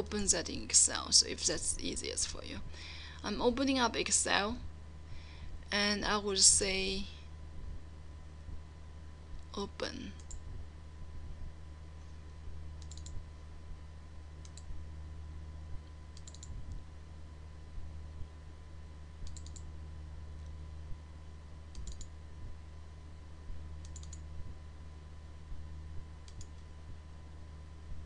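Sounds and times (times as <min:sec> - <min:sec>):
steady low hum: 0:00.0 - 0:28.0
computer mouse clicking: 0:10.2 - 0:10.4, 0:12.8 - 0:13.2, 0:14.4 - 0:14.7, 0:16.1 - 0:16.8, 0:19.2 - 0:19.7, 0:21.7 - 0:22.1, 0:23.8 - 0:24.2, 0:26.2 - 0:26.7.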